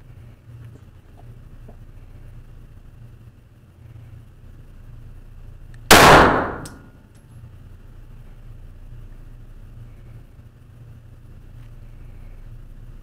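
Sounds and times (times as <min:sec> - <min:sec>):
pistol shot: 0:05.9 - 0:06.9.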